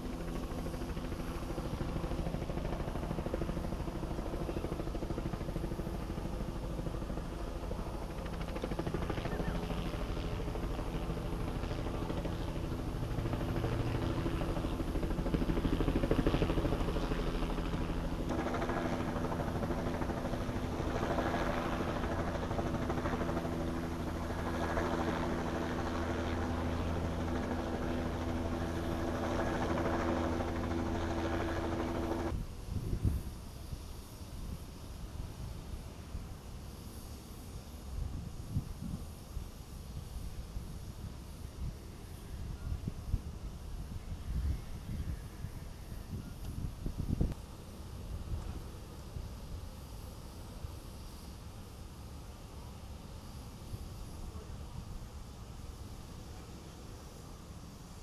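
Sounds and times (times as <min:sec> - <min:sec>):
low hum: 0:05.2 - 0:32.3
engines droning: 0:10.6 - 0:32.4.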